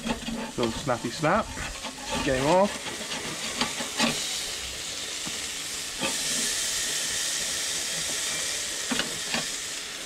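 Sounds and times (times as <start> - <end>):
fish sizzling on grill: 0.0 - 10.0.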